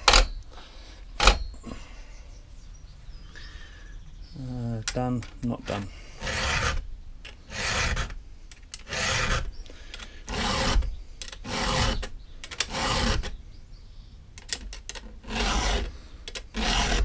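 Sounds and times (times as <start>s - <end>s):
file rasping on saw chain: 5.7s - 6.8s, 7.5s - 8.2s, 8.9s - 9.5s, 10.3s - 13.3s, 15.2s - 15.9s, 16.5s - 17.0s.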